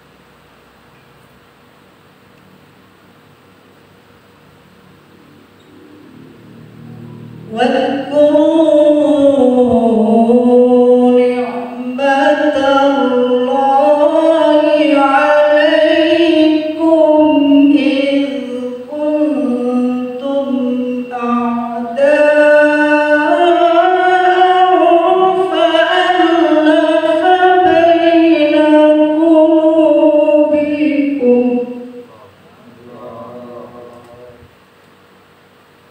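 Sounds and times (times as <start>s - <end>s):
man reciting into a microphone: 7.5s - 34.5s.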